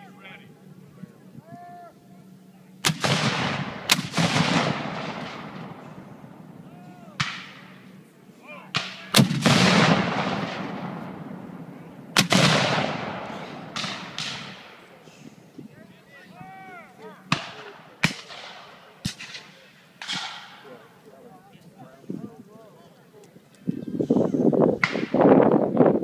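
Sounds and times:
cannons firing with rolling echo: 2.8s - 15.0s, 17.0s - 20.9s.

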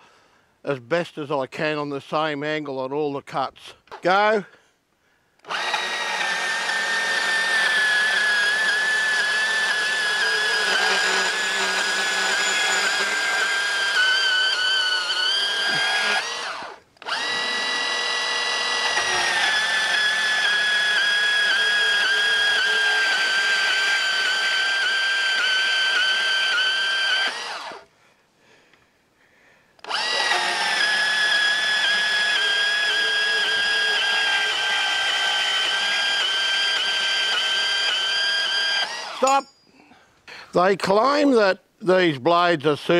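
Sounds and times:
bandsaw cutting metal tube: 5.4s - 27.8s, 29.8s - 39.5s.

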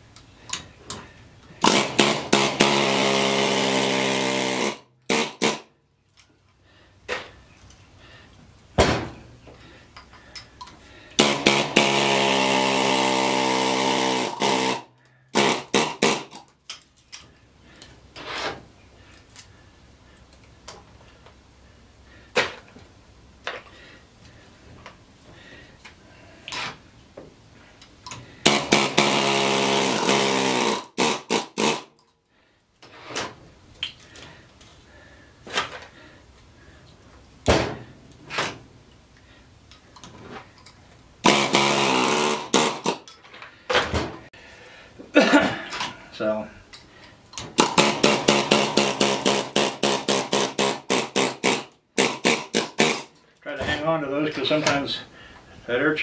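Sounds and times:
air chisel hammering: 28.4s - 31.9s, 41.3s - 43.0s, 47.6s - 53.1s.

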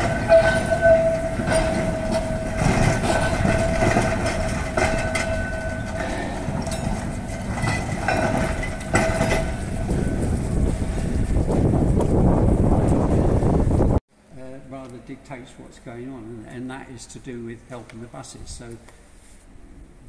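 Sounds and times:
tram wheels squealing: 0.0s - 11.7s
wheels clunking over rail joints: 0.0s - 14.0s
tram rumbling: 0.0s - 14.7s.

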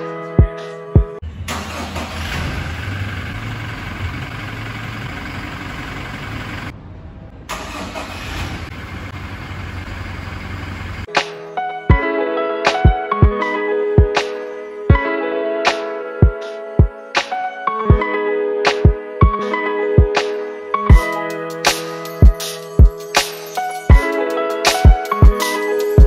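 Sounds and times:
car engine starting and idling: 1.2s - 11.1s.

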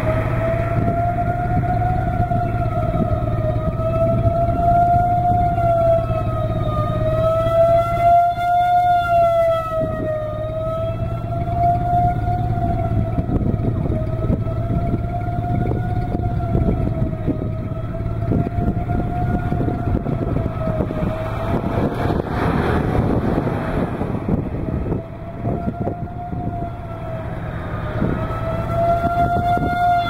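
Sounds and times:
low rumbling noise: 0.0s - 30.0s
warning siren wailing: 0.0s - 30.0s.

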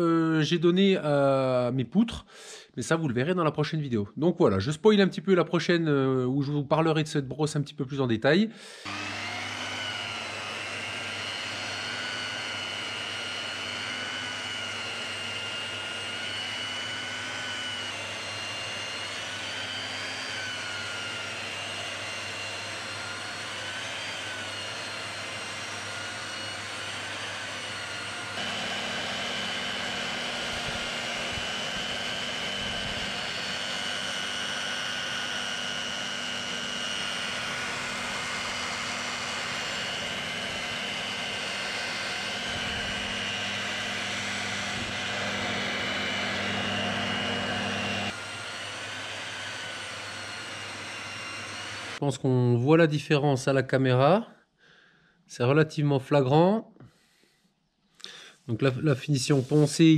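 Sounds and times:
power brush motor whine: 8.7s - 52.0s.

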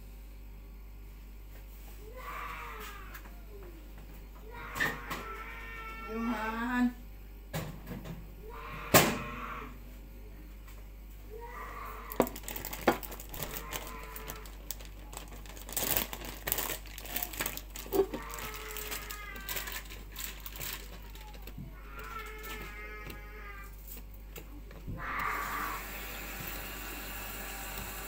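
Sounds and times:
plastic bag crinkling: 12.1s - 23.0s.

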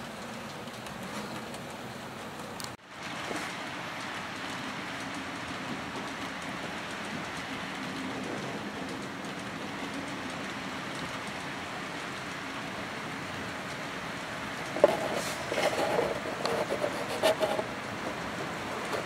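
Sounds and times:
model trains whirring on track: 0.0s - 19.0s.

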